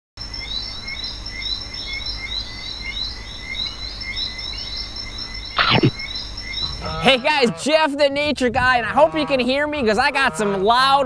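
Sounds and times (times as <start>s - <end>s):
high chirping calls: 0.3s - 7.7s.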